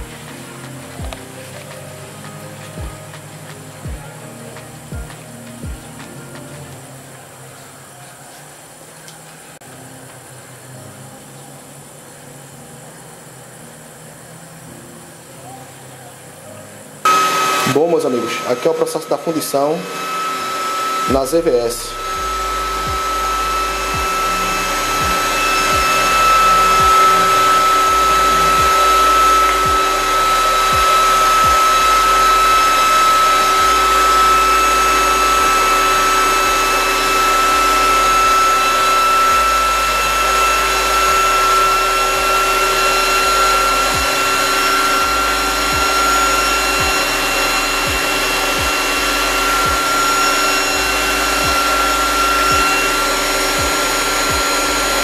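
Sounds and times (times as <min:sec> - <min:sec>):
continuous hiss: 0:00.0 - 0:17.1
induction heater whine: 0:00.0 - 0:55.0.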